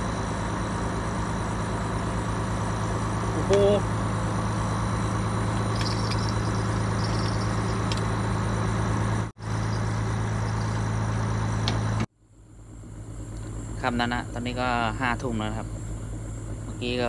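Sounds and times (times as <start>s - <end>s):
motor humming: 0.0s - 12.0s.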